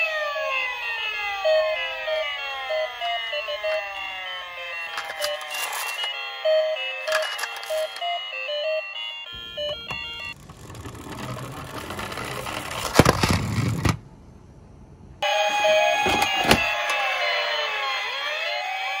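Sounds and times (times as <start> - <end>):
electronic chime music: 1.1 - 10.4
toy wheels rumbling on wood: 4.8 - 6.2, 7.0 - 8.1, 9.9 - 14.0.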